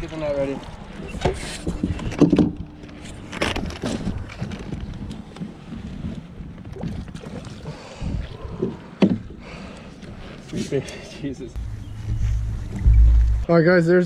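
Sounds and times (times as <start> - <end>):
wind rumbling on microphone: 0.0 - 9.0, 11.6 - 13.6.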